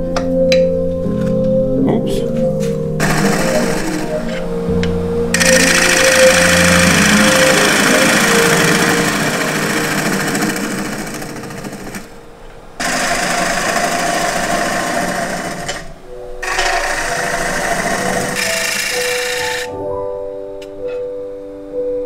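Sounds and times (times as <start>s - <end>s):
lathe motor hum: 3.0s - 4.5s, 5.3s - 12.2s, 12.8s - 19.7s
gouge scraping wood: 16.4s - 19.7s.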